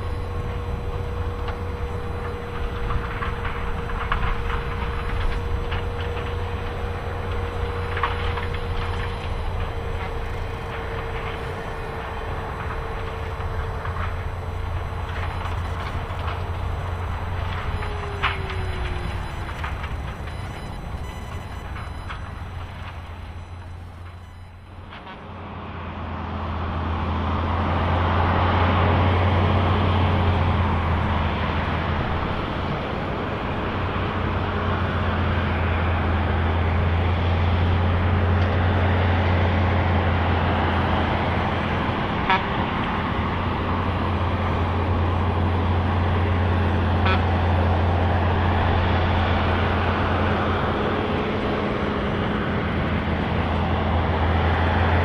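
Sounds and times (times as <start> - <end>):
engine drone: 0.0 - 55.0
rough asphalt cutting noise: 0.0 - 55.0.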